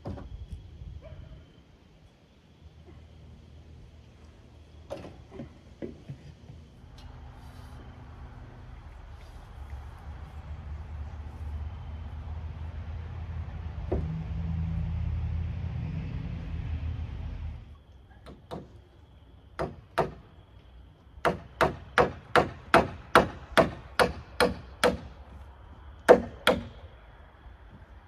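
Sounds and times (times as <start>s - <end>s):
low steady rumble: 6.7s - 17.9s
hammer nailing into timber: 19.6s - 20.2s, 21.2s - 25.1s, 26.1s - 26.8s.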